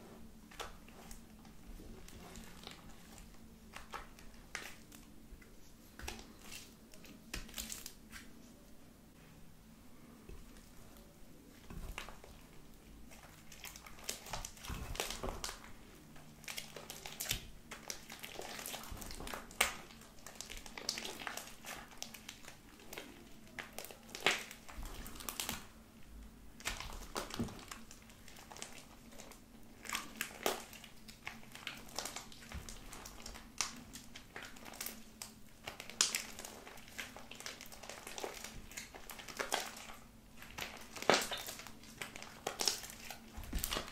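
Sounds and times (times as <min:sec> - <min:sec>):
slime being squished by hand: 0:11.5 - 0:25.8, 0:26.5 - 0:43.9.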